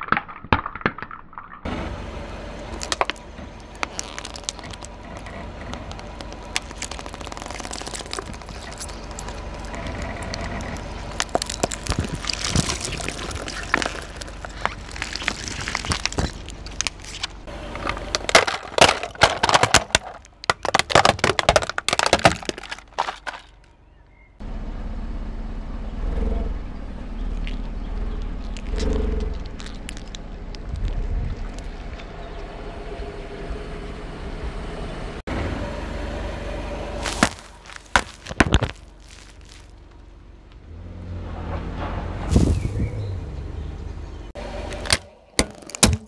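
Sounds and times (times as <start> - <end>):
tyre crushing plastic: 2.7 - 23.7, 37.0 - 39.9, 44.7 - 46.0
low rumble: 23.6 - 45.4
wind noise on microphone: 30.6 - 31.8, 42.2 - 43.2.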